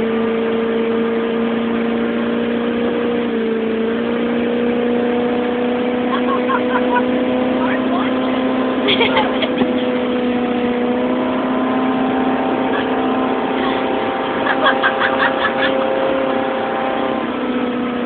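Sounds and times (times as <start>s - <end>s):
motorboat engine running: 0.0s - 18.0s
voices: 6.1s - 9.9s.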